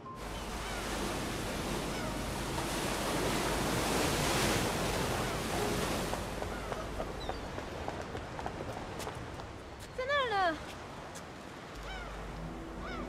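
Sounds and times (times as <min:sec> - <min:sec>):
sea surf on rocky shore: 0:00.0 - 0:13.0.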